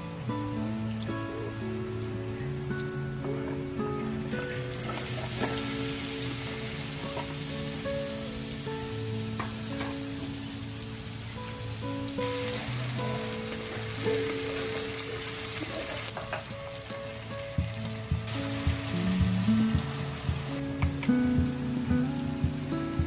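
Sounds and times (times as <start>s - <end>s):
music with held melodic notes: 0.0s - 23.0s
food sizzling in a pan: 4.0s - 21.2s.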